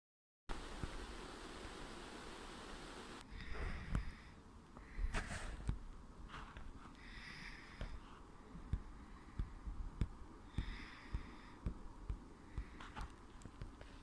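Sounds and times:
soft breathing: 3.1 - 14.0.

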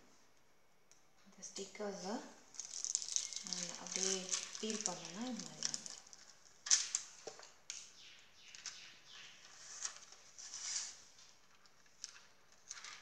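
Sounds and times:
plastic sheet rustling and crinkling: 2.0 - 7.6, 8.5 - 13.0.

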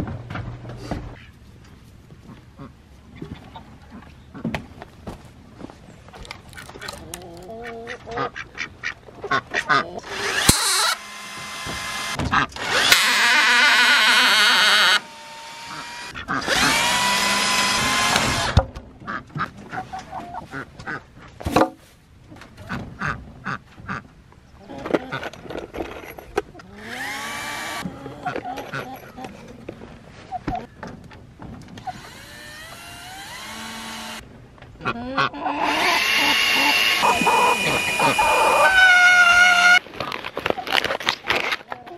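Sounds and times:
cordless drill driving screws: 10.0 - 18.6, 26.8 - 27.8, 31.8 - 34.2, 35.6 - 38.9.

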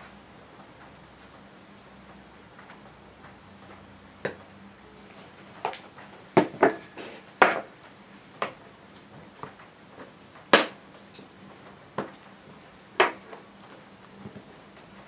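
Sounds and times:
knocks and clatters on wooden table: 13.0 - 13.4.

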